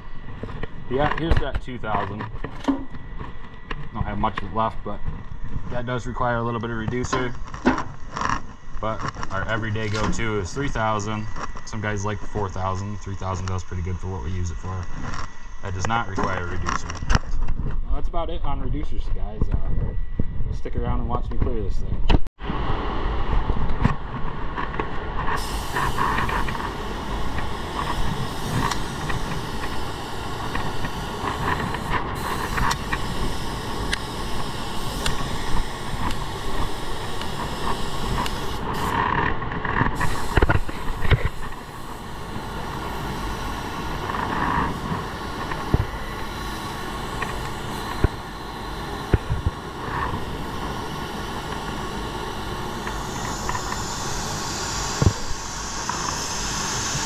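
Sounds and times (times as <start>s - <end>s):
paint spray gun hissing: 25.3s - 39.1s, 40.0s - 57.0s.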